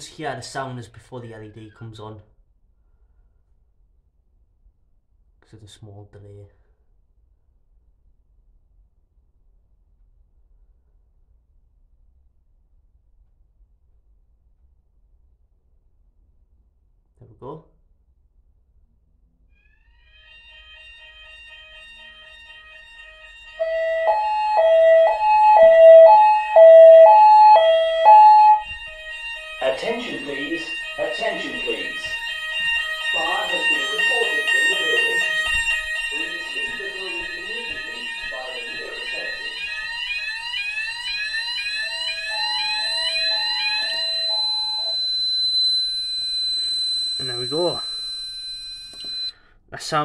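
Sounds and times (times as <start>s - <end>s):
two-tone fire alarm: 20.0s - 49.5s.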